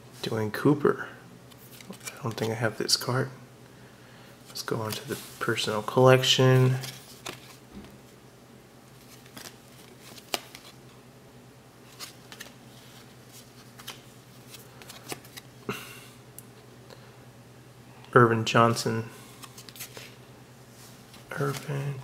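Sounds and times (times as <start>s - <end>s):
steady low hum: 0.0s - 22.0s
cards clicking and rustling: 1.5s - 2.6s, 6.7s - 8.0s, 9.0s - 10.8s, 11.9s - 15.5s, 21.1s - 22.0s.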